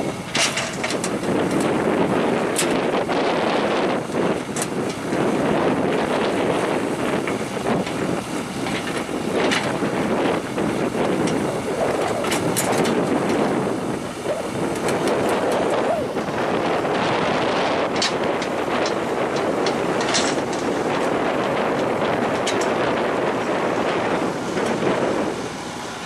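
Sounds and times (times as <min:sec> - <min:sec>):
heavy machinery running: 0:00.0 - 0:26.0
wind buffeting microphone: 0:00.0 - 0:26.0
metal clanks: 0:18.0 - 0:20.8.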